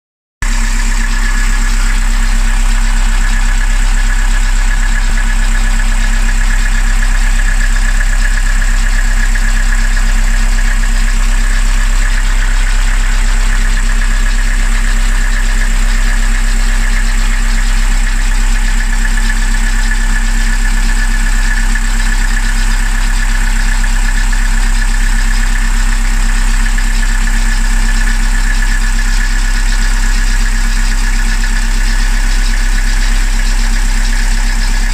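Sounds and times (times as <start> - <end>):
diesel engine idling: 0.4 - 34.9.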